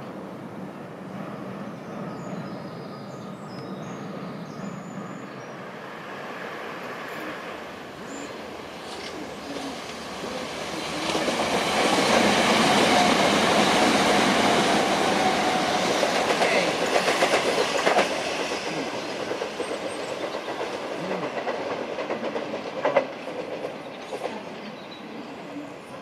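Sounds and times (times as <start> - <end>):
train wheels clattering: 8.8 - 24.9.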